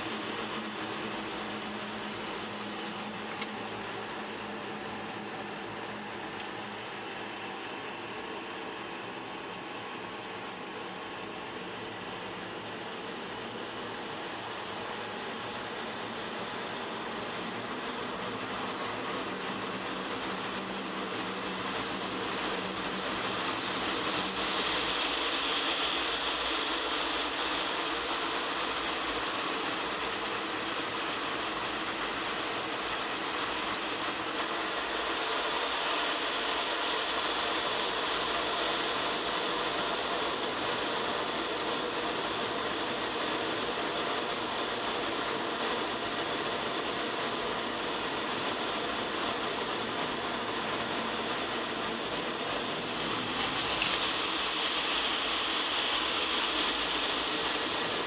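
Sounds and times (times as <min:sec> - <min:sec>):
jet engines droning: 0:00.0 - 0:58.0
rush of airflow: 0:00.0 - 0:58.0.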